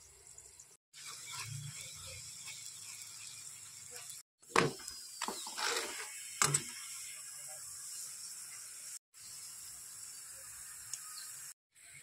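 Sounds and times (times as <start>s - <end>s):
flatbread sizzling in hot oil: 0.0s - 12.0s
spatula scraping a pan: 1.0s - 4.2s, 5.3s - 6.6s.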